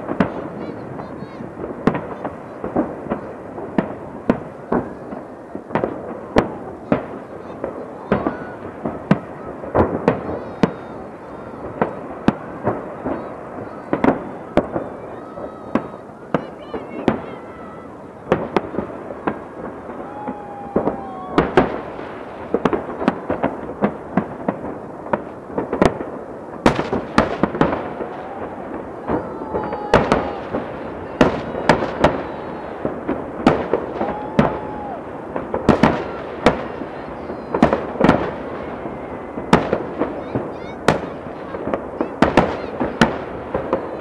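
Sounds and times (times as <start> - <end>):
firework shells bursting: 18.0 - 44.0.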